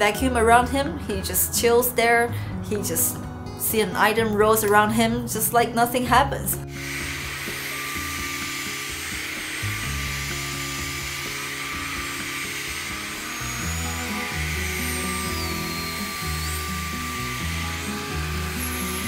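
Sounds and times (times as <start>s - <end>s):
background music with bass line: 0.0s - 19.0s
stick vacuum whine: 6.7s - 19.0s.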